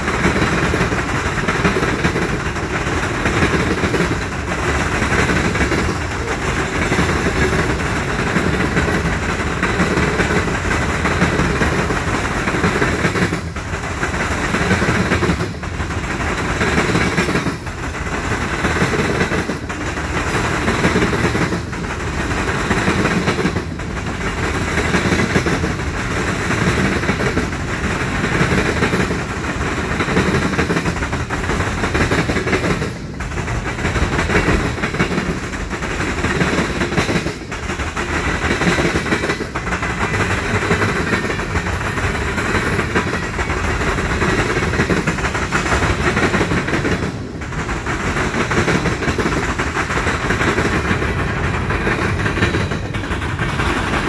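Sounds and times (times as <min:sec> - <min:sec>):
freight train rumbling past: 0:00.0 - 0:54.0.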